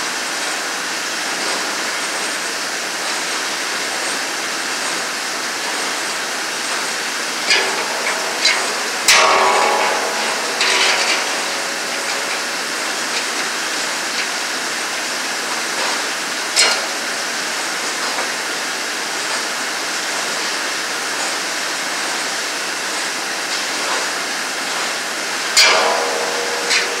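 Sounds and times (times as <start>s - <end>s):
saw plate ringing: 7.3s - 15.5s, 25.5s - 27.0s
metal tools clanking on saw blade: 7.4s - 14.4s, 25.6s - 27.0s.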